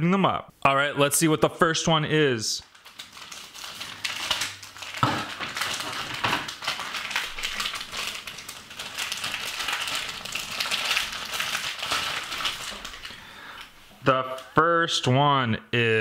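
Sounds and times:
plastic wrapper crinkling: 2.6s - 13.8s.

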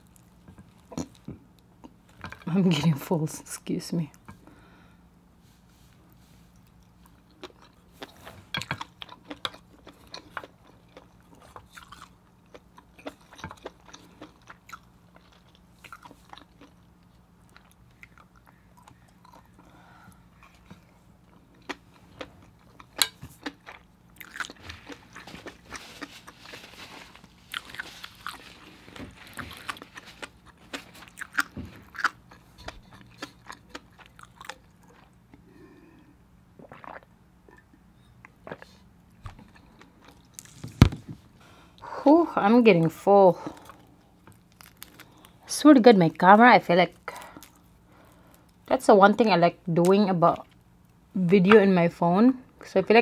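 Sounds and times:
faint low hum: 0.0s - 53.0s
person chewing food: 6.0s - 40.6s, 43.4s - 45.4s, 47.1s - 48.7s.

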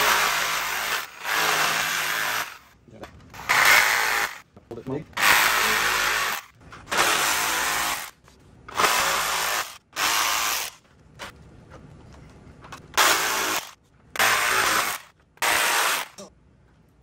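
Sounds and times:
power saw cutting plastic: 0.0s - 2.6s, 3.4s - 4.4s, 5.2s - 8.1s, 13.0s - 16.3s.

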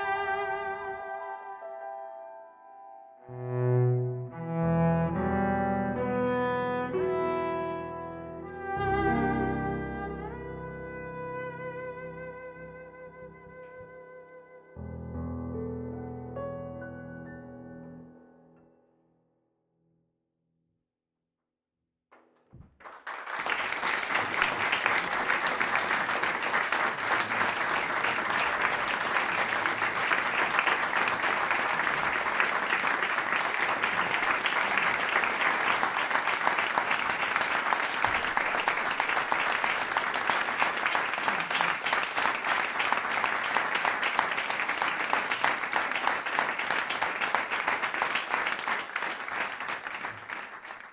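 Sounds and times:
audience applauding: 22.8s - 50.9s.

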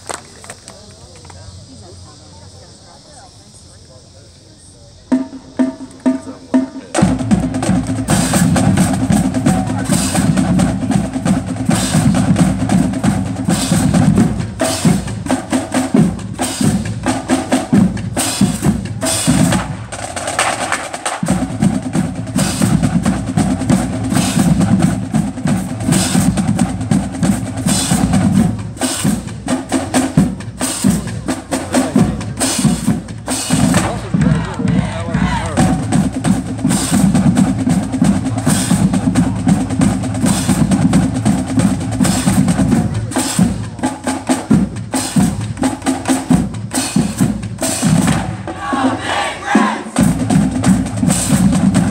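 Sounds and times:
rapid snare drum strokes: 5.1s - 51.9s
low drum pulse: 50.0s - 51.9s.

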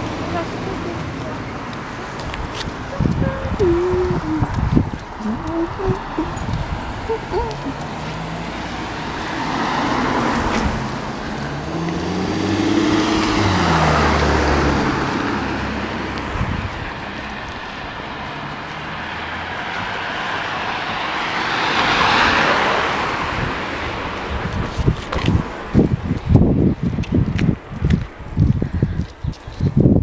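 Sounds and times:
cars passing on wet road: 0.0s - 28.9s
car engine passing: 4.4s - 24.5s.

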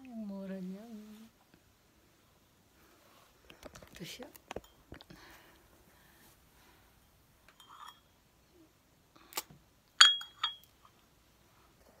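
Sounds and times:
teacup clinking against saucer: 10.0s - 10.7s.

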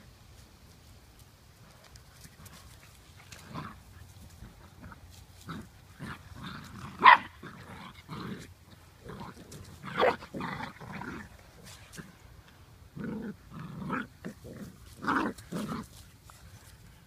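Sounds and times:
puppies growling and grunting: 3.3s - 12.2s, 12.8s - 16.0s.

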